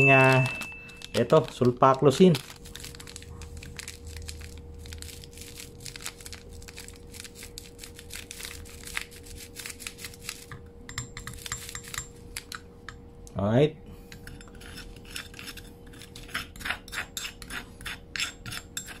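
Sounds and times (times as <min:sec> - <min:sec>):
powder sachet crinkling: 0:00.0 - 0:10.5.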